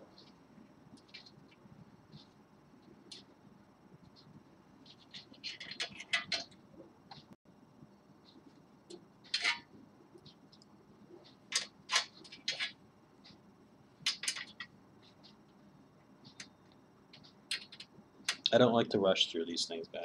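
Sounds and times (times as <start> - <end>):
metal screws clicking on metal frame: 5.1 - 6.6, 9.3 - 9.7, 11.5 - 12.8, 14.1 - 14.7.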